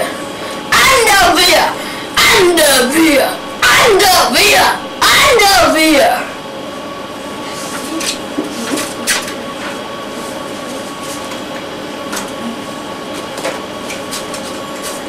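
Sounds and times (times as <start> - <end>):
background hum and hiss: 0.0 - 15.0
paper pages rustling: 13.8 - 15.0.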